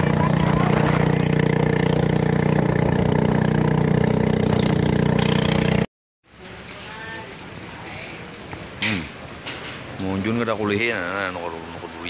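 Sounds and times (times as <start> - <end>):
motorboat engine running: 0.0 - 5.9.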